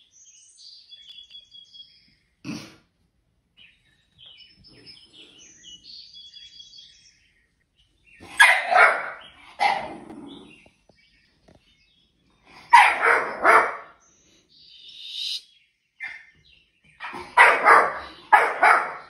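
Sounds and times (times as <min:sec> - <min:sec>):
faint bird chirps on television: 0:00.0 - 0:02.4, 0:03.5 - 0:19.0
young dog barking: 0:08.2 - 0:10.5, 0:12.6 - 0:14.0, 0:17.0 - 0:19.0.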